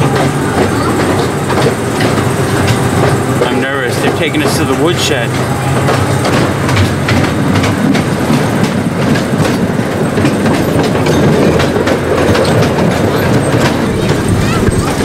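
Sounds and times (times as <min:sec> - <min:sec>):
miniature train rumbling on track: 0:00.0 - 0:15.0
wheels clicking over rail joints: 0:00.0 - 0:15.0.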